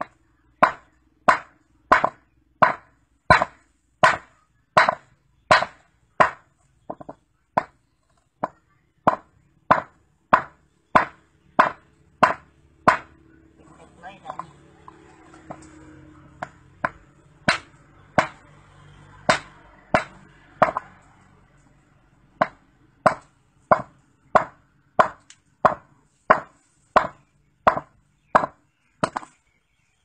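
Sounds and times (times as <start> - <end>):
hammer striking rock: 0.0 - 7.8, 8.4 - 13.2, 16.4 - 18.4, 19.3 - 20.9, 22.4 - 29.4.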